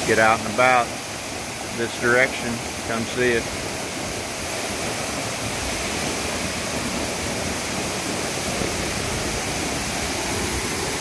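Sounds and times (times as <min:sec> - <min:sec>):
waterfall rushing: 0:00.0 - 0:11.0.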